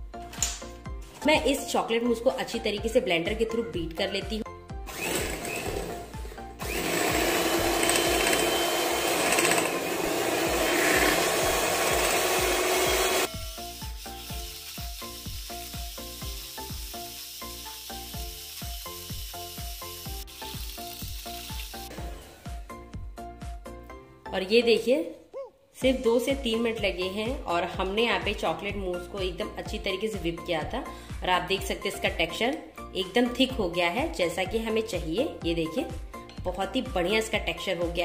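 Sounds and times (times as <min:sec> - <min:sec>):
background music with steady beat: 0:00.0 - 0:38.0
hand mixer motor whirring: 0:04.8 - 0:22.0.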